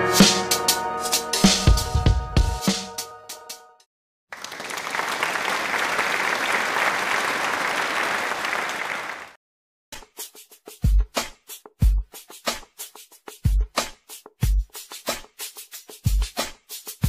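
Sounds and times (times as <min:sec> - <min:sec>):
drum-backed music: 0:00.0 - 0:03.6, 0:09.9 - 0:17.0
crowd applause: 0:04.3 - 0:09.4.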